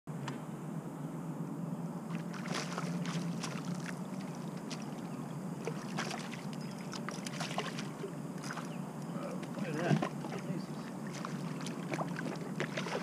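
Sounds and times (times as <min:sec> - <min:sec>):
steady low hum: 0:00.1 - 0:13.0
water splashes and knocks: 0:02.2 - 0:04.0, 0:05.6 - 0:08.7, 0:09.4 - 0:13.0.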